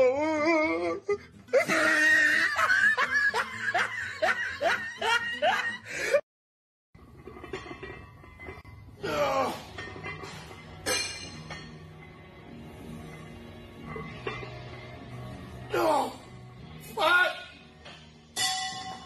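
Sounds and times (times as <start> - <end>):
person laughing hard: 0.8 - 6.2.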